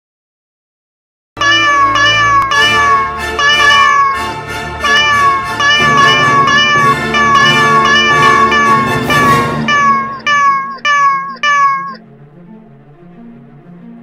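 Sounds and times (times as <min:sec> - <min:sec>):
cat meows: 0:01.4 - 0:12.0
music: 0:01.4 - 0:14.0.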